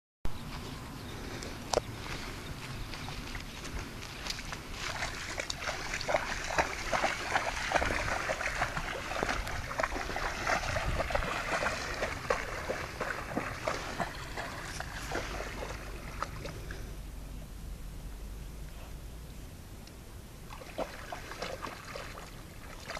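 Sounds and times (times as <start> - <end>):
dog splashing through water: 3.0 - 16.8, 20.5 - 22.9.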